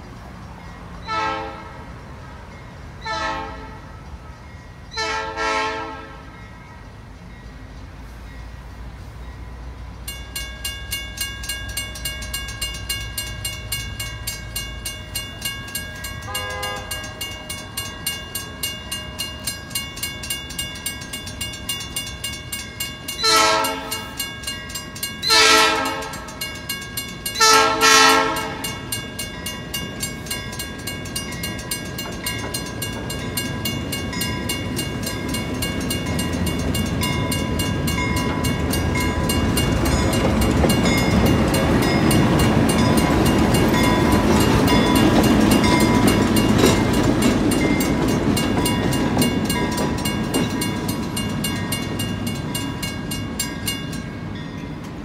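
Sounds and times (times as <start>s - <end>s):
locomotive rumble: 0.0s - 55.0s
railroad crossing bell ringing: 0.0s - 55.0s
locomotive horn blasts: 1.1s - 1.9s, 3.0s - 4.0s, 5.0s - 6.4s, 16.2s - 17.2s, 23.2s - 24.2s, 25.3s - 26.4s, 27.4s - 28.9s.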